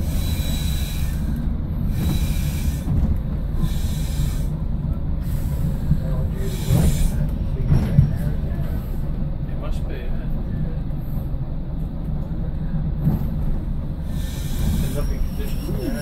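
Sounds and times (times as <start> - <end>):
diesel train engine rumbling: 0.0 - 16.0.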